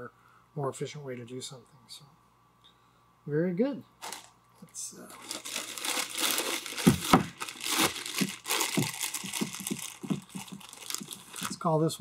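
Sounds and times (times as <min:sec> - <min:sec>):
plastic bag crinkling: 0:04.0 - 0:04.4, 0:05.0 - 0:11.7.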